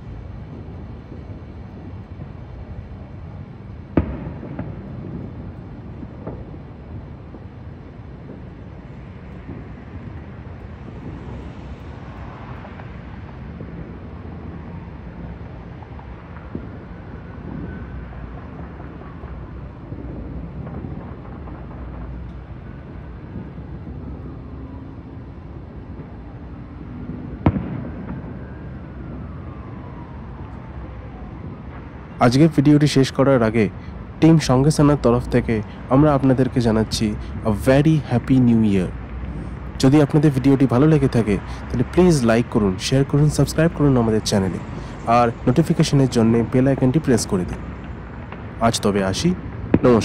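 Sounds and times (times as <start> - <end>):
distant fireworks popping: 0.0 - 50.0
firework sharp crack: 3.9 - 5.4, 27.4 - 28.4, 47.8 - 50.0.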